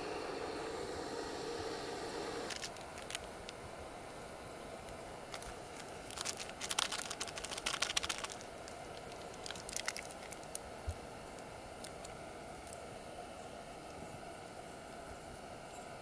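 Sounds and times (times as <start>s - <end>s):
plastic wrappers crinkling: 2.5s - 3.6s, 5.3s - 10.7s.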